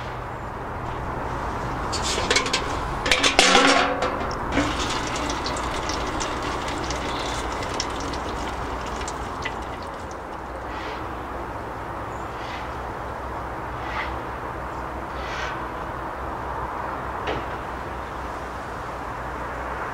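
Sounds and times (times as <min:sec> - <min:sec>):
metallic knocks and clatter: 0:00.8 - 0:10.8.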